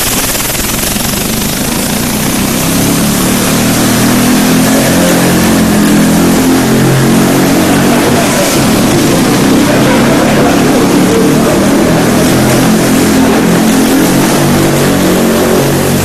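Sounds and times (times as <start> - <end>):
air engine humming with hiss: 0.0 - 16.0.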